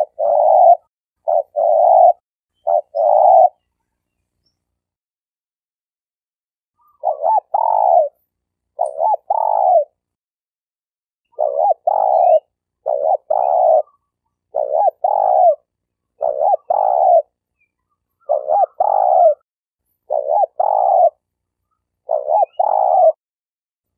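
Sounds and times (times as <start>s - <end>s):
dove cooing: 0.0s - 3.6s, 6.8s - 8.2s, 8.8s - 10.0s, 11.3s - 17.4s, 18.2s - 19.4s, 20.1s - 21.3s, 22.0s - 23.2s.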